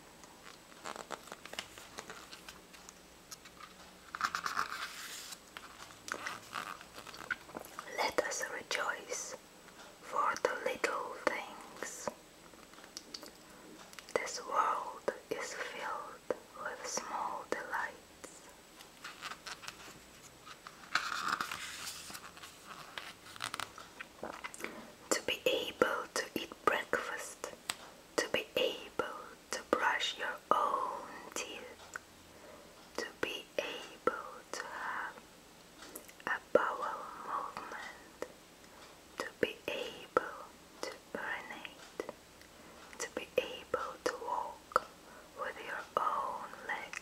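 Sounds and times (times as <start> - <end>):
page turning rustle: 0.4 - 7.9, 18.8 - 24.6
paper pages crinkling: 0.4 - 7.9, 18.8 - 24.6.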